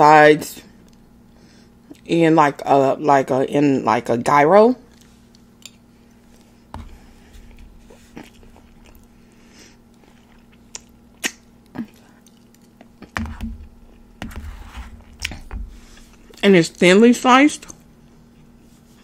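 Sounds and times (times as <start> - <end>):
faint steady hum: 0.0 - 19.0
wet chewing and mouth clicks: 6.8 - 9.3, 9.9 - 14.2.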